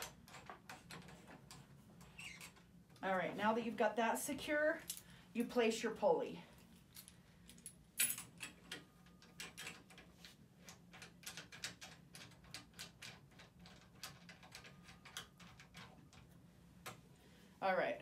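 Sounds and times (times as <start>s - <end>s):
pulley clicking and knocking: 0.0s - 2.7s, 8.2s - 17.0s.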